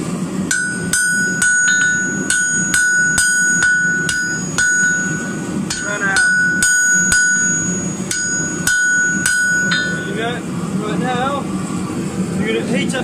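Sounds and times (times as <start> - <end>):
hammer striking hot metal on anvil: 0.5 - 10.5
anvil ringing: 0.5 - 10.6.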